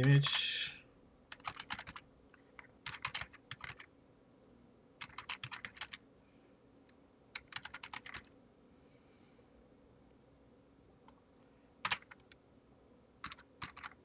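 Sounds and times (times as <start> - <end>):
typing on keyboard: 0.0 - 0.4, 1.3 - 3.9, 5.0 - 6.0, 7.3 - 8.3, 11.8 - 12.4, 13.2 - 14.0.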